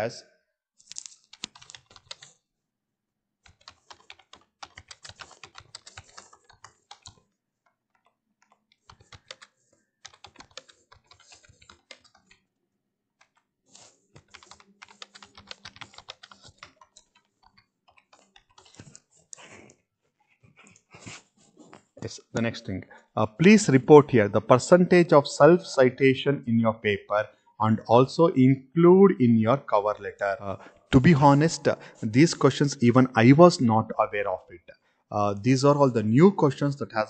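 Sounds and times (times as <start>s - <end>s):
computer keyboard typing: 0.9s - 2.4s, 3.4s - 12.5s, 13.2s - 19.4s.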